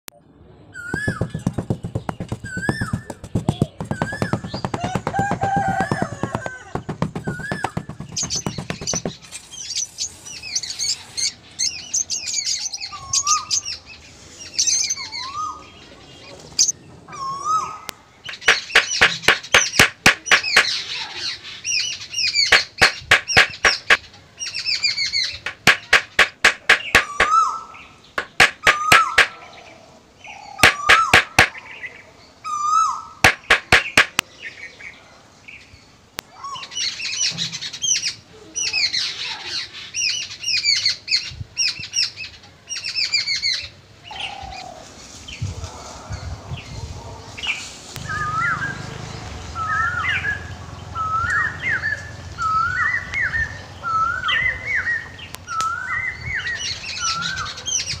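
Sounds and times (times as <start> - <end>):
birds chirping: 0.7 - 35.0
fast sharp clicks: 1.1 - 9.2, 18.3 - 20.8, 22.5 - 24.0, 25.4 - 27.4, 28.2 - 29.4, 30.6 - 31.5, 33.2 - 34.2.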